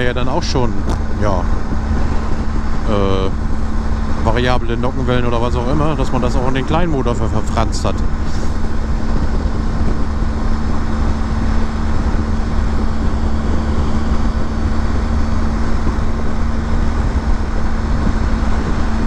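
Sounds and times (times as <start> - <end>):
constant hum: 0.0 - 19.0
motorcycle engine drone: 0.0 - 19.0
road noise: 0.0 - 19.0
wind rush: 0.0 - 19.0.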